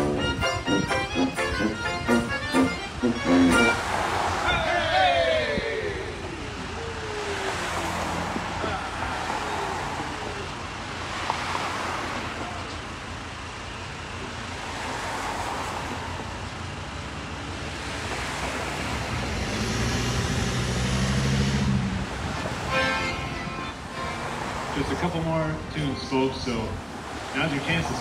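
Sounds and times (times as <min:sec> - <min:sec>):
vehicle passing by: 0:00.0 - 0:12.8, 0:17.8 - 0:25.7.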